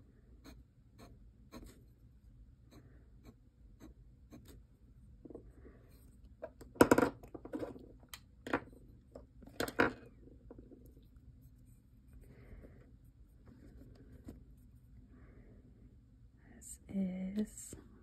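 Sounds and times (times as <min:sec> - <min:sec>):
pen nib scratching on paper: 0:02.7 - 0:04.6.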